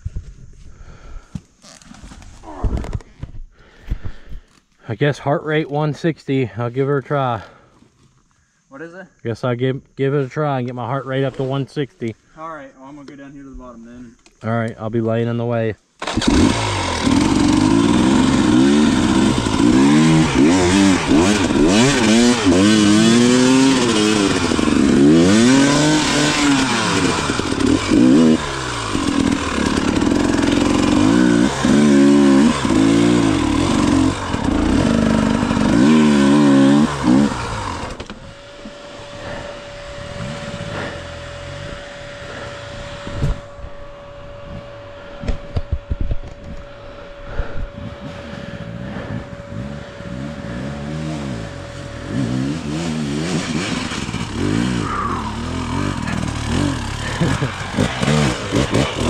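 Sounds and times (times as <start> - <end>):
dirt bike engine revving: 16.0 - 59.0
low engine sound: 16.0 - 59.0.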